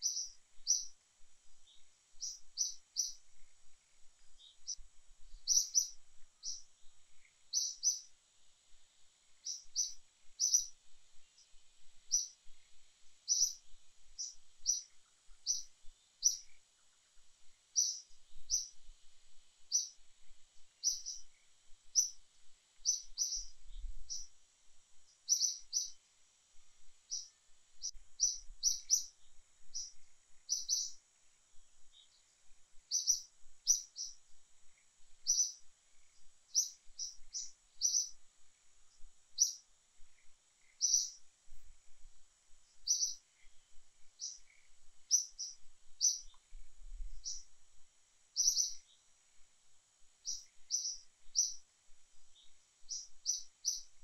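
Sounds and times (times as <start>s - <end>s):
bird chirping: 0.0s - 8.2s, 9.3s - 18.9s, 19.6s - 20.0s, 20.6s - 22.2s, 22.8s - 24.4s, 25.0s - 26.0s, 26.8s - 31.0s, 31.8s - 38.2s, 38.9s - 41.7s, 42.7s - 47.6s, 48.3s - 49.1s, 50.2s - 54.0s
faint steady hiss: 0.0s - 54.0s.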